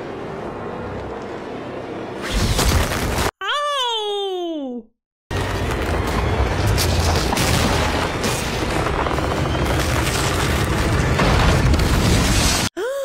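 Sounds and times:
rumbling booming sound effects: 5.5s - 12.7s.

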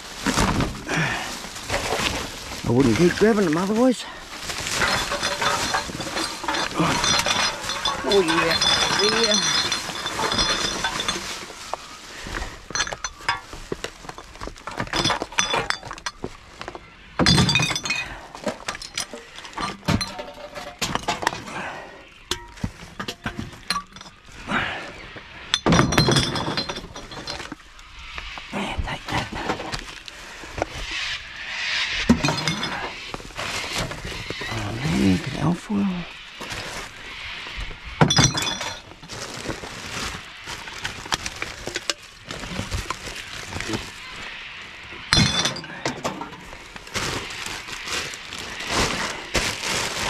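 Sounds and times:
loud clatters: 0.2s - 16.4s
glass containers clinking and rattling: 1.6s - 24.4s, 25.5s - 27.6s, 32.1s - 35.5s, 38.0s - 44.1s, 45.0s - 50.0s.

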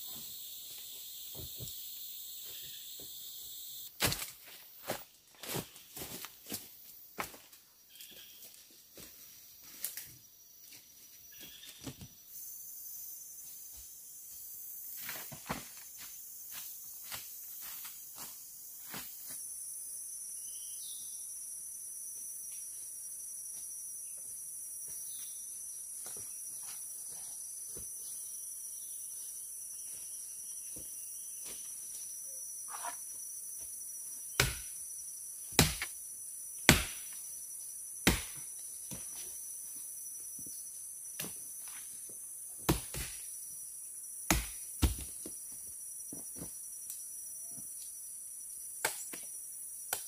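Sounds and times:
forest insects droning: 0.0s - 50.0s
knife chopping into branch: 34.4s - 34.7s, 35.5s - 35.9s, 36.7s - 37.1s, 38.0s - 38.4s.

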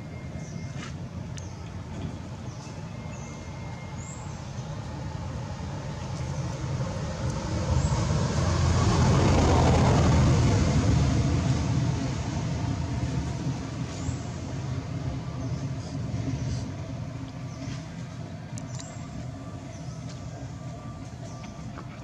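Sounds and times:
vehicle passing by: 5.2s - 17.8s.

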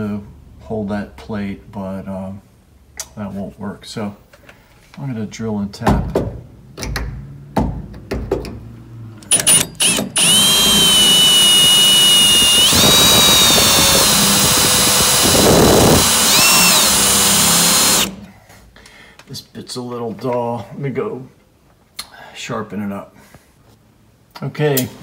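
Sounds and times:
cordless drill whining: 9.3s - 18.2s.

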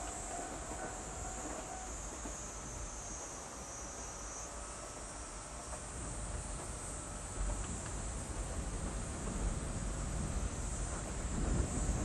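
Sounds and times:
insects droning: 0.0s - 12.0s
wind rumble on microphone: 5.8s - 12.0s.

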